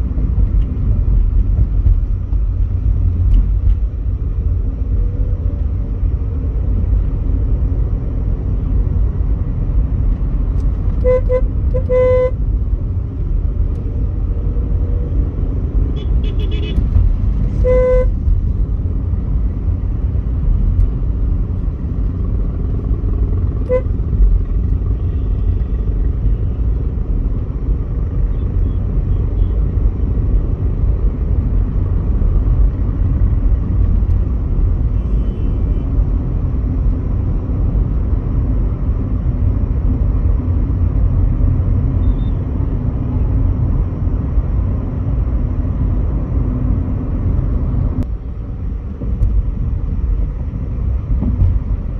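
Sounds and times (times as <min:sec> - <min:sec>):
road and engine rumble: 0:00.0 - 0:51.9
car horn beep: 0:11.0 - 0:12.4, 0:16.0 - 0:16.8, 0:17.5 - 0:18.2, 0:23.7 - 0:24.0, 0:34.9 - 0:35.9, 0:42.0 - 0:42.4.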